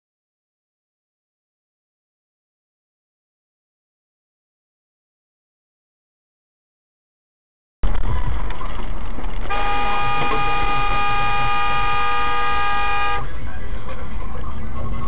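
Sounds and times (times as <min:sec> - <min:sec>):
road and engine noise: 0:07.8 - 0:15.0
car horn blast: 0:09.5 - 0:13.3.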